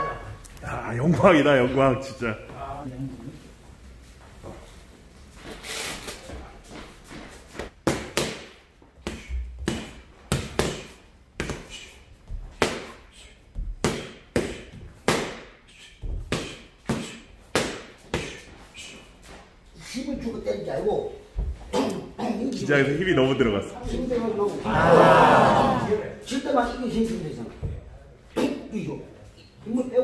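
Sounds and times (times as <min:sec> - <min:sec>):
boxing gloves slapping focus mitts: 0:07.6 - 0:13.0, 0:13.6 - 0:18.5.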